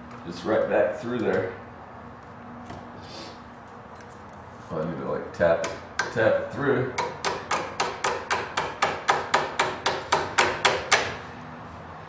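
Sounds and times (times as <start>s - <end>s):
hammer tapping a pin: 7.0s - 11.1s.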